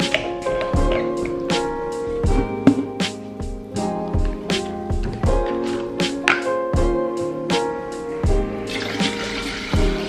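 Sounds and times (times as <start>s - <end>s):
background music with steady beat: 0.0s - 10.0s
water pouring into metal jug: 8.7s - 9.7s.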